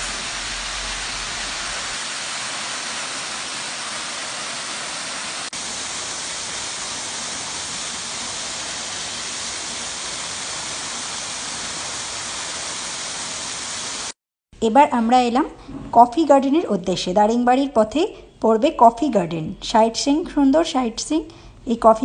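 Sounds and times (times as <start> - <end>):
waterfall rushing over rocks: 0.0 - 14.2.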